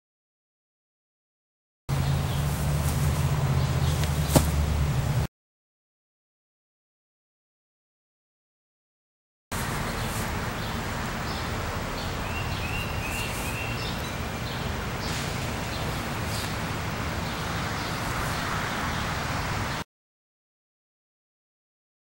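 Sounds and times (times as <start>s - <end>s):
steady hiss and rumble: 1.9s - 5.3s, 9.5s - 19.8s
bird chirps: 9.7s - 19.0s.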